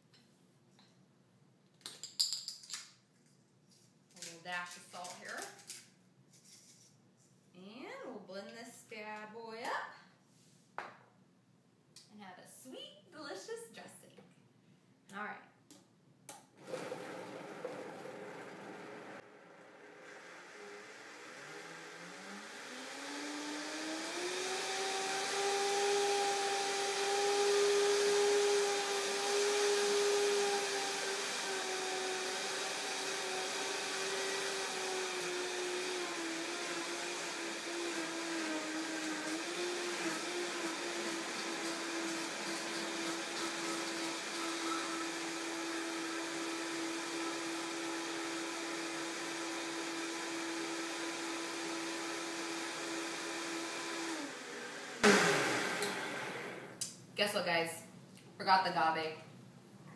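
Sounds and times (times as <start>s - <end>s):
blender motor whining: 16.6s - 56.9s.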